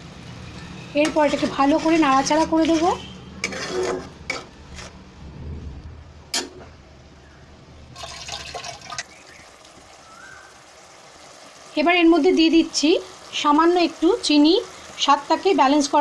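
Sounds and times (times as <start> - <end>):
spatula scraping wok: 0.5 - 5.2.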